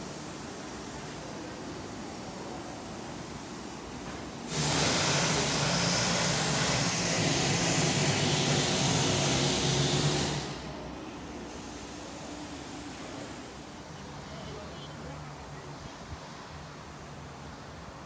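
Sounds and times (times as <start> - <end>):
machine rushing hiss with hum: 0.0 - 14.4.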